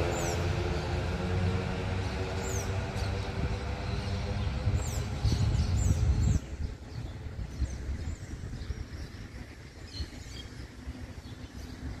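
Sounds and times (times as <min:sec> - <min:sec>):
vehicle engine passing: 0:00.0 - 0:06.2
small birds chirping: 0:00.0 - 0:12.0
street hum: 0:00.0 - 0:12.0.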